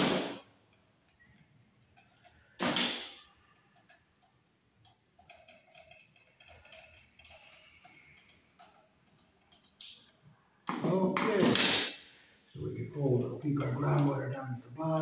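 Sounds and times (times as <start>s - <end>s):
screwdriver clicking and scraping: 3.8s - 10.1s.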